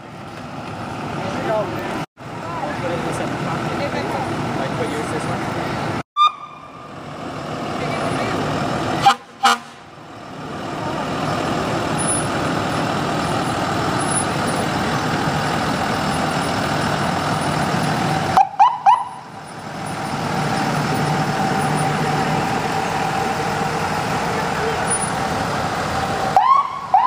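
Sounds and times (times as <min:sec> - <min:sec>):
ambulance engine running: 0:00.0 - 0:27.0
siren chirps: 0:06.2 - 0:07.0, 0:26.4 - 0:27.0.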